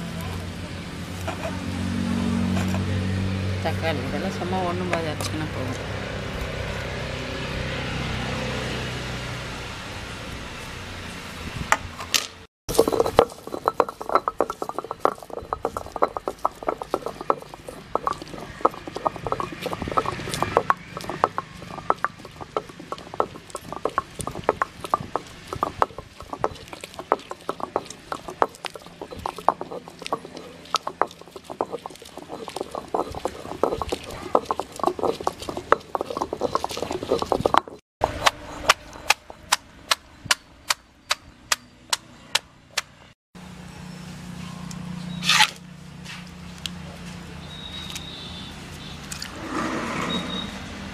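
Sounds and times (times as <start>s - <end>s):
gritty stone clacks and knocks: 12.1s - 42.1s
stone grinder rolling: 12.7s - 40.0s, 49.2s - 50.6s.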